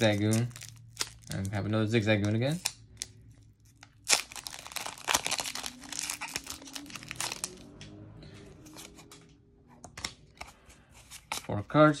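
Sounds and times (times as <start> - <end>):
foil wrapper tearing and crinkling: 0.0 - 7.7.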